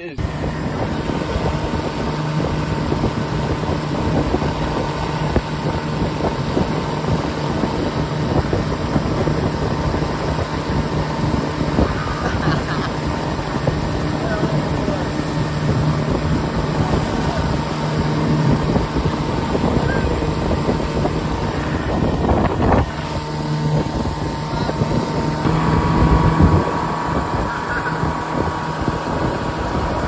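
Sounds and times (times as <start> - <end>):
outboard motor running: 0.0 - 30.0
wind buffeting microphone: 0.0 - 30.0.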